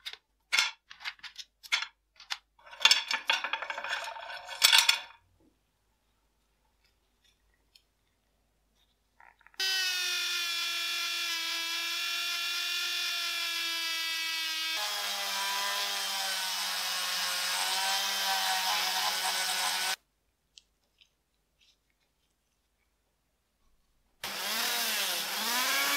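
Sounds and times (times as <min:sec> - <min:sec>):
rotary tool whine: 0:09.6 - 0:20.0, 0:24.2 - 0:25.9.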